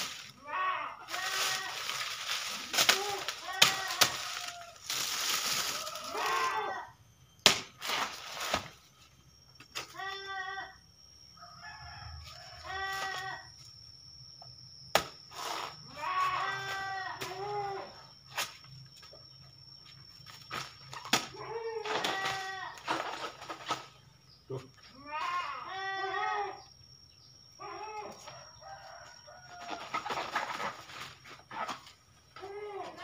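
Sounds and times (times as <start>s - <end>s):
blade chopping plant trunk: 7.4s - 8.7s
chickens clucking and crowing: 28.1s - 32.4s.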